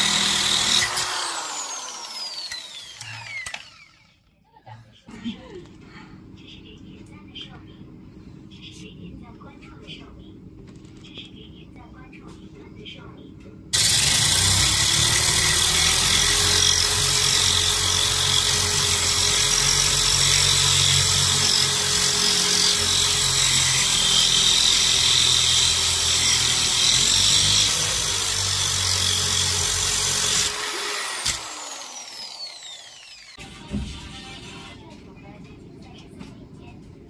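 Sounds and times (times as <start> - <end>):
drill grinding through glass: 0.0 - 4.1, 13.8 - 33.4.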